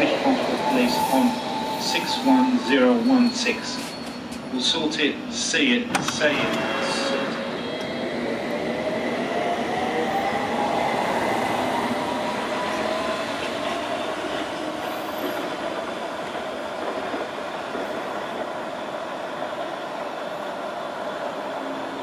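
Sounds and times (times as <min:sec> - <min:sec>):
wheels rumbling on rail: 0:05.9 - 0:22.0.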